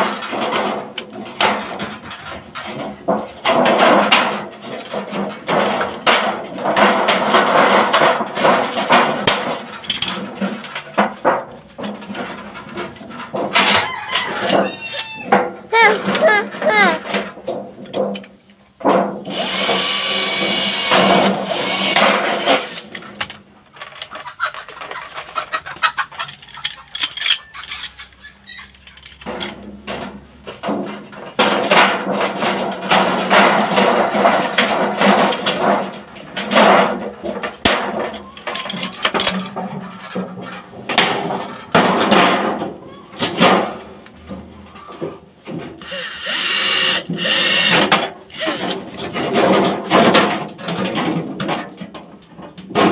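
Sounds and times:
power tool working sheet metal: 19.2s - 22.8s, 45.8s - 49.0s.

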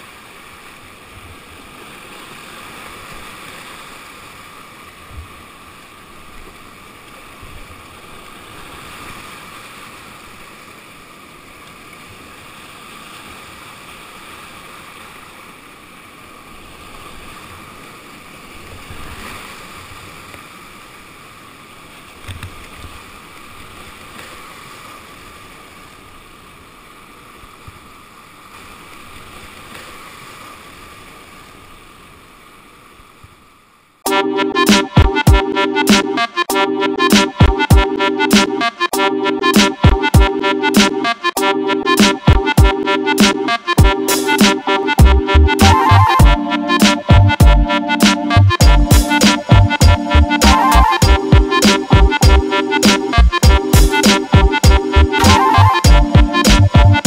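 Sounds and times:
river water rushing: 0.0s - 22.2s.

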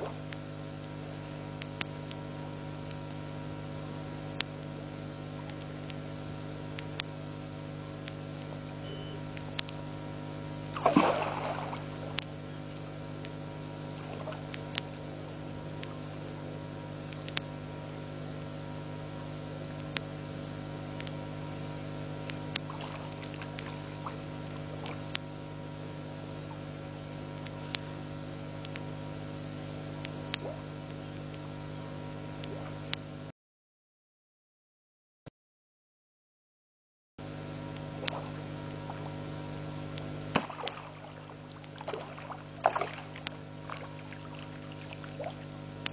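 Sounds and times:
frogs calling: 0.0s - 33.3s, 37.2s - 45.9s
steady hum: 0.0s - 33.3s, 37.2s - 45.9s
sharp clicks: 8.0s - 9.9s.

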